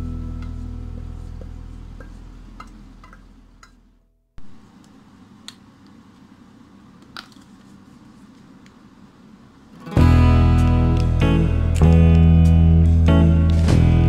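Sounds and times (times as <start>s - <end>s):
acoustic guitar music: 9.8s - 14.0s.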